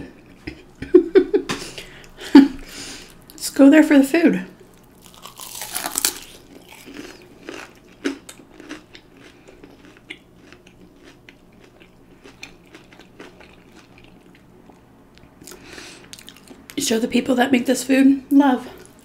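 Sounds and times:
crunchy chewing: 4.7s - 16.7s.

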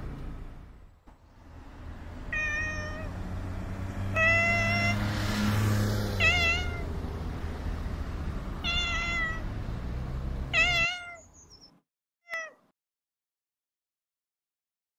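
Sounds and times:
cat meowing: 2.3s - 3.2s, 4.1s - 5.0s, 6.2s - 6.9s, 8.6s - 9.5s, 10.5s - 11.4s, 12.3s - 12.6s.

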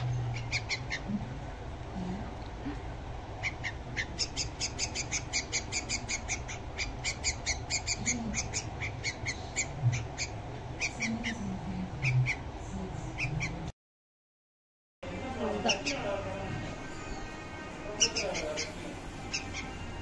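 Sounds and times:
bird fledgling chirping: 0.0s - 1.1s, 3.4s - 12.4s, 17.9s - 20.0s.

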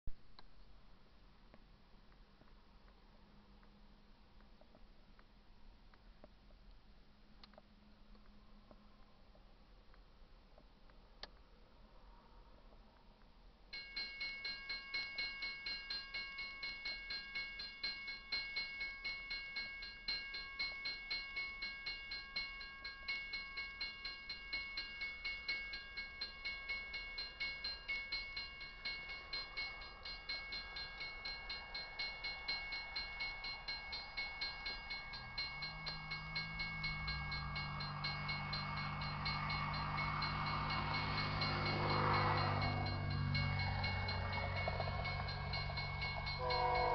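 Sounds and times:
diesel locomotive drone and rumble: 0.3s - 46.9s
crossing warning bell ringing: 13.7s - 46.9s.

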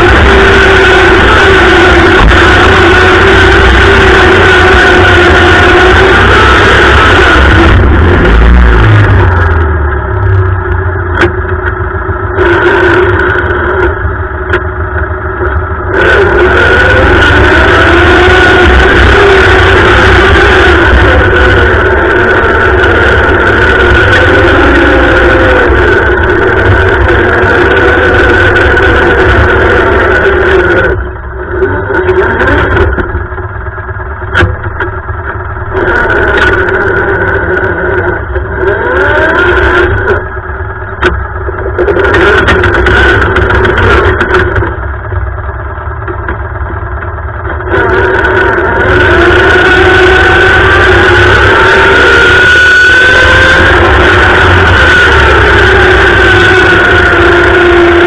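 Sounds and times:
lawn tractor engine running: 0.0s - 58.0s
sharp clicks or knocks: 34.3s - 35.0s.

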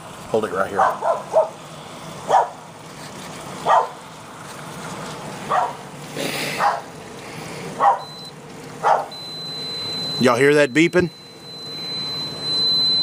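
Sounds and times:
dog barking: 0.7s - 1.6s, 2.3s - 2.6s, 3.6s - 4.0s, 5.5s - 5.8s, 6.6s - 6.9s, 7.8s - 8.1s, 8.8s - 9.2s.

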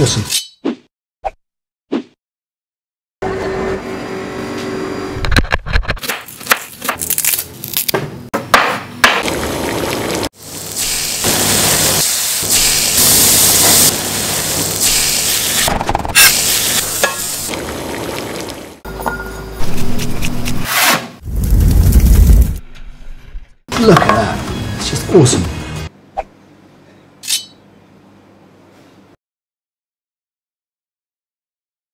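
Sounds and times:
butter sizzling in pot: 9.2s - 18.8s.

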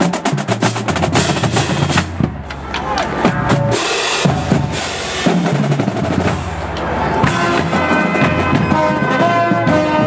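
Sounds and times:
bass drums: 0.0s - 10.0s
snare drums: 0.0s - 10.0s
horns playing: 6.2s - 10.0s.

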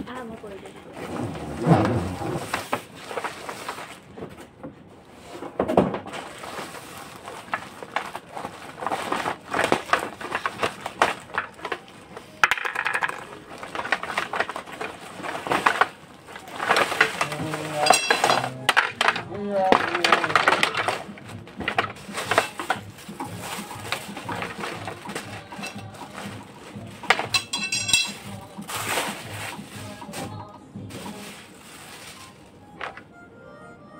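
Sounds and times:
plastic bag crinkling: 6.2s - 32.7s
plastic parts knocking: 7.2s - 30.3s.

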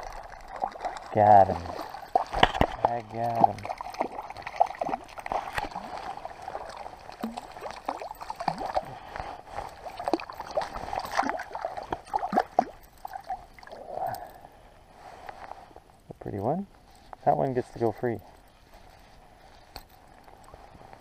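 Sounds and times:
fish thrashing in water: 0.0s - 13.8s.

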